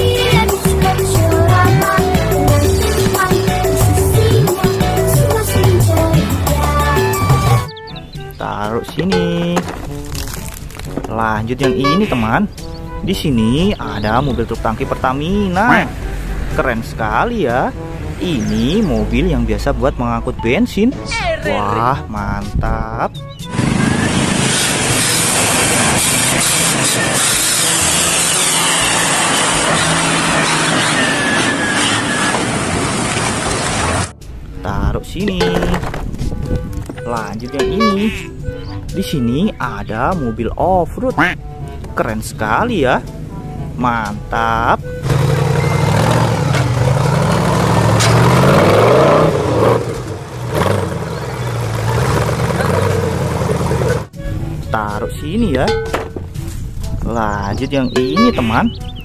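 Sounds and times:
truck diesel engine rumbling: 23.2s - 34.9s, 41.4s - 57.0s.

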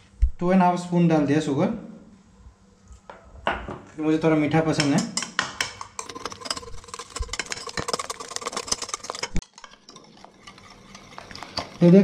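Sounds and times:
whisk clicking against bowl: 4.7s - 12.0s.

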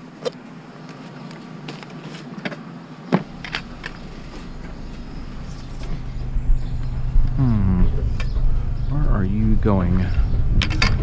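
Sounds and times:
vehicle engine running: 3.2s - 11.0s.

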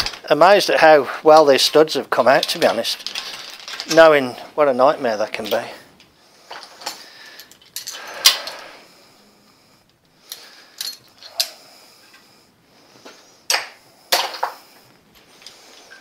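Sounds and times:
hand tools clanking on metal: 1.4s - 4.0s.

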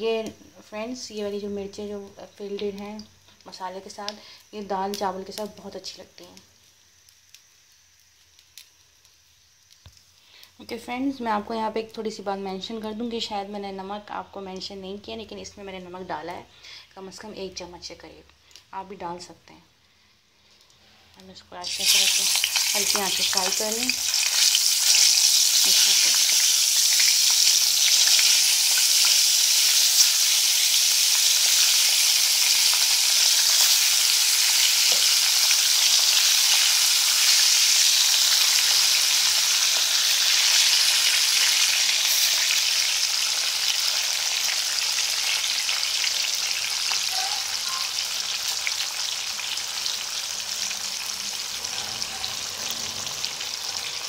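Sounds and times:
chillies sizzling in oil: 0.0s - 54.0s.

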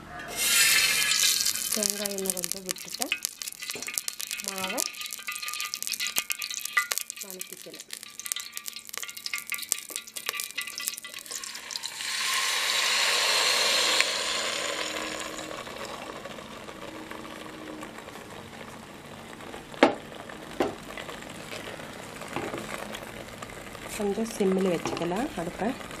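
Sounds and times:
batter hissing in hot oil: 0.3s - 26.0s
spoon clanking against pot: 1.8s - 11.6s.

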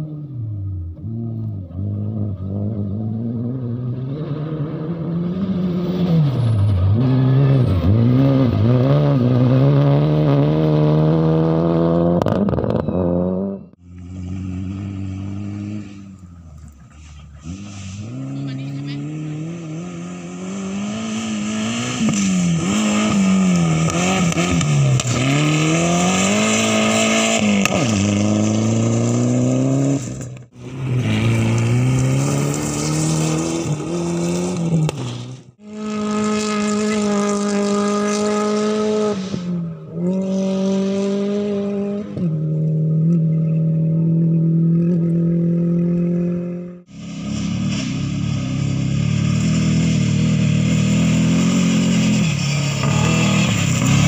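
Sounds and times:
rally car engines at full throttle: 0.0s - 54.0s.

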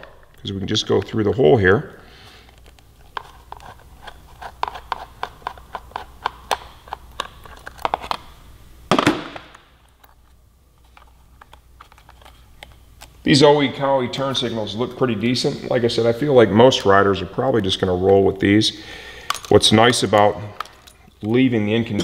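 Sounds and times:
screwdriver scrape: 3.2s - 6.1s.

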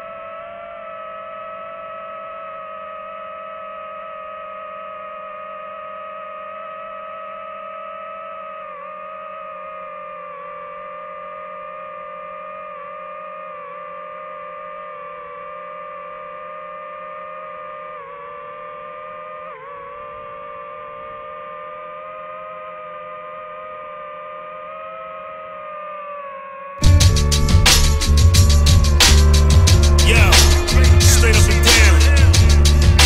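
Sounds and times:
drone propellers whining: 26.8s - 33.0s.

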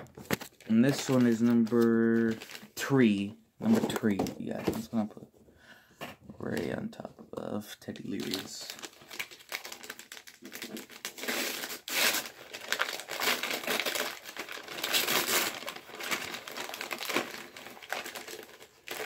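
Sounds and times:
packaging crinkling and rustling: 0.0s - 2.9s, 8.0s - 19.0s.

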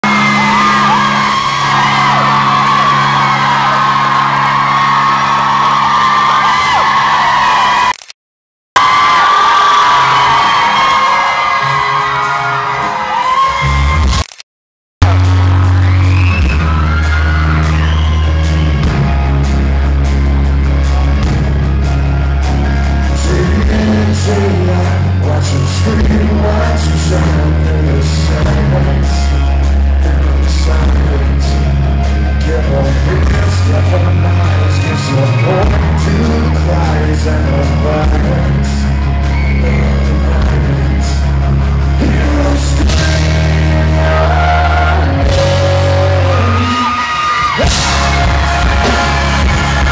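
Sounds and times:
electric guitar: 0.0s - 7.9s, 15.0s - 49.9s
heavy bass: 0.0s - 8.0s, 15.0s - 49.9s
drums: 8.8s - 14.3s, 15.0s - 49.9s
man singing: 23.0s - 49.9s.

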